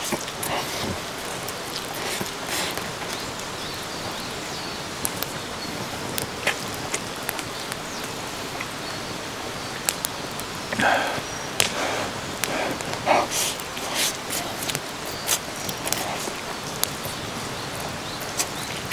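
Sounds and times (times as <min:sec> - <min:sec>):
noodles slurped and chewed: 0:00.0 - 0:03.2, 0:10.8 - 0:18.9
rain hissing: 0:00.0 - 0:18.9
wood fire crackling: 0:00.0 - 0:18.9.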